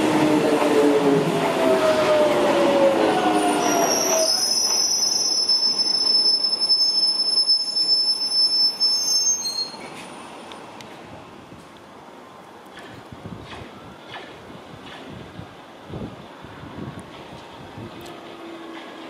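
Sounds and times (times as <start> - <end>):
train rail noise: 0.0 - 19.0
high-pitched wheel squeal: 3.3 - 10.0.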